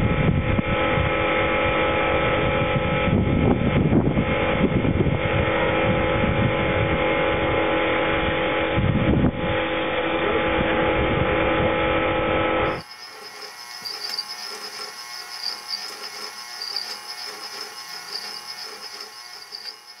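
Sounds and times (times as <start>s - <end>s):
pressure washer running: 12.7s - 20.0s
quiet high motor whine: 12.7s - 20.0s
spray on paving: 12.7s - 20.0s.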